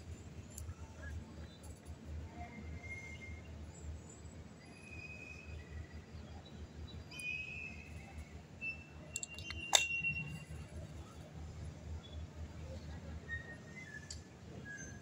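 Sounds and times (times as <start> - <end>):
plastic parts clicking together: 9.1 - 9.9.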